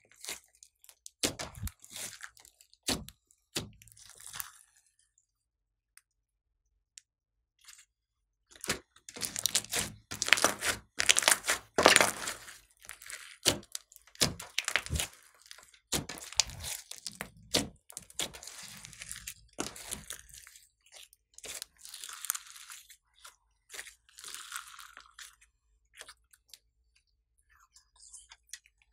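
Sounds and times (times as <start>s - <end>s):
slime squishing: 0.0s - 4.8s, 8.5s - 26.7s
beads crackling in slime: 8.6s - 23.0s, 23.6s - 25.4s.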